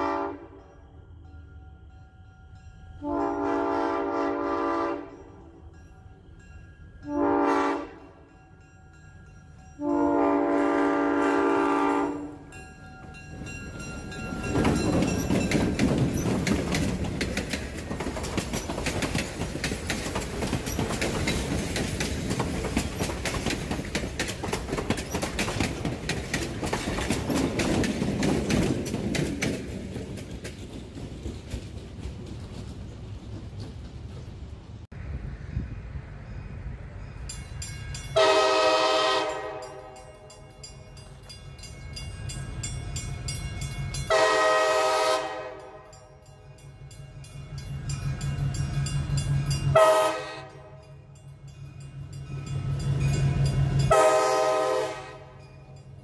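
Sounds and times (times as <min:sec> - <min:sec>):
locomotive horn blasts: 0:00.0 - 0:00.6, 0:03.0 - 0:05.3, 0:07.0 - 0:08.2, 0:09.8 - 0:12.4, 0:38.2 - 0:40.1, 0:44.1 - 0:46.0, 0:49.7 - 0:50.9, 0:53.9 - 0:55.5
train passing rumble: 0:00.0 - 0:56.0
wheels clacking over rails: 0:13.0 - 0:34.9.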